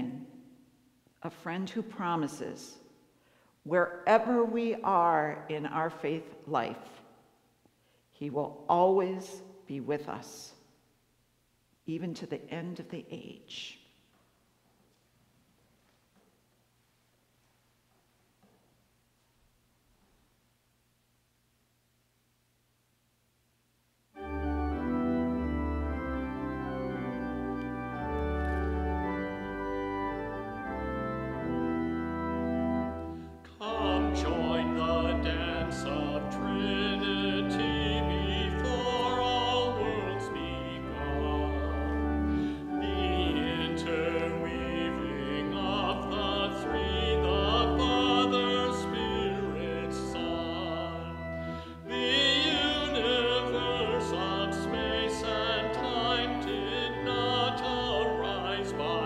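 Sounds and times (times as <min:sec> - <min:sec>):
church organ chords: 0:24.1 - 0:59.0
person singing with vibrato: 0:33.4 - 0:59.0.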